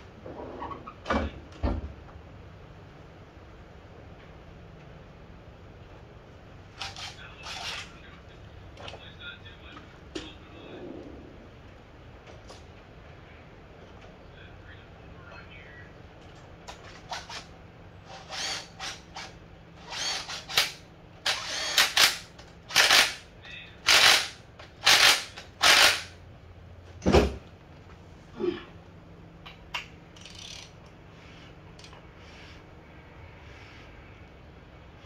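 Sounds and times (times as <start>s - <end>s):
power tool bursts on bolts: 18.2s - 23.2s, 23.9s - 26.1s.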